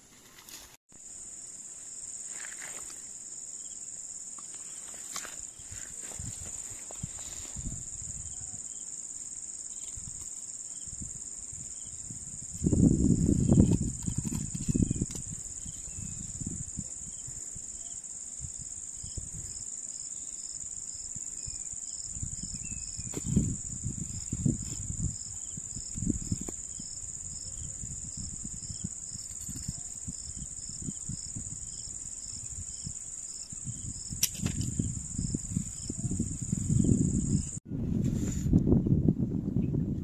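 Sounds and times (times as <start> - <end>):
insects droning: 0.0 - 37.6
insect chirping: 0.9 - 37.6
low rumbling on microphone: 34.6 - 40.0.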